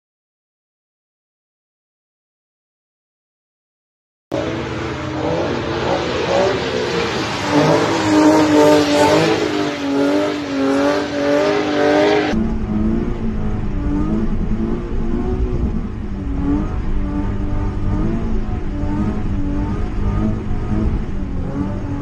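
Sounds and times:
car engine revving: 4.3s - 22.0s
tyres hissing on wet road: 4.4s - 12.4s
engine rumbling inside cabin: 12.3s - 22.0s.

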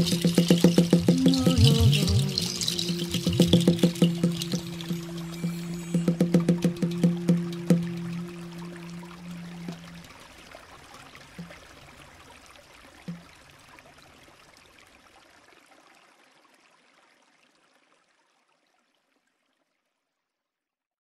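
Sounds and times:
brief low notes: 0.0s - 10.2s
flowing stream water: 0.0s - 19.2s.

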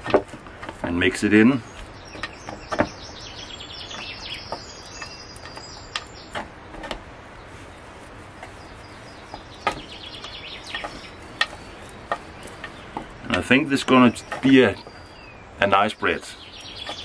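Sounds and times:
small birds chirping: 0.0s - 17.0s
hands kneading dough: 3.8s - 15.0s.

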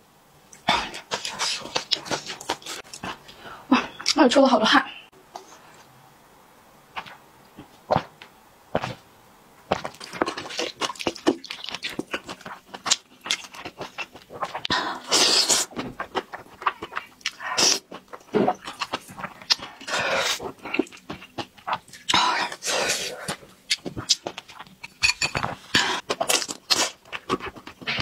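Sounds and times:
wet chewing of noodles: 0.6s - 3.3s, 9.7s - 24.8s, 25.5s - 28.0s
slurping noodles: 14.3s - 20.9s.

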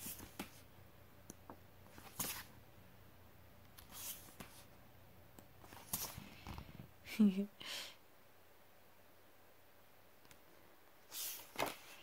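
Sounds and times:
pages turning: 0.0s - 0.6s, 1.9s - 2.5s, 3.8s - 4.7s, 5.6s - 6.7s, 11.1s - 12.0s.

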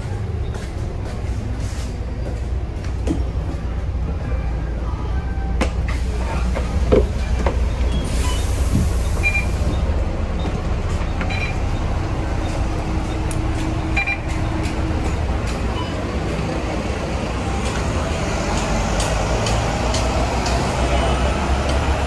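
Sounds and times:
diesel bus engine idling: 5.8s - 22.0s
short high beeps: 13.9s - 14.4s.

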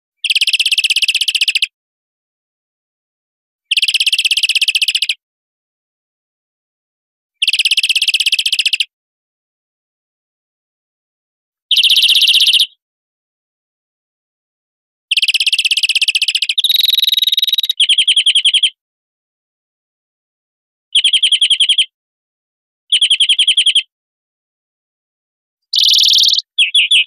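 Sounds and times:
finch trilling song: 11.7s - 12.8s, 15.1s - 18.8s, 21.0s - 21.9s, 22.9s - 23.9s, 25.7s - 27.0s.

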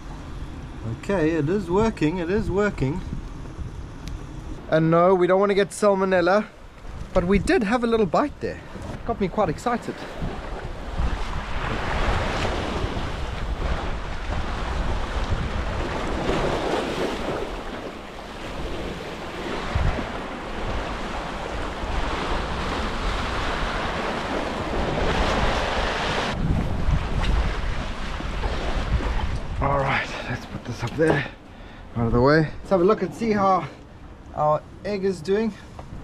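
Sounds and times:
wind buffeting microphone: 0.0s - 4.7s, 6.5s - 36.0s
sea surf washing against rocks: 6.0s - 31.4s.

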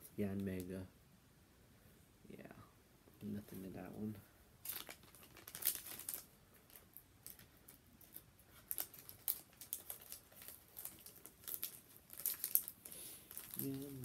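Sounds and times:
foil wrapper crinkling: 4.6s - 14.0s.

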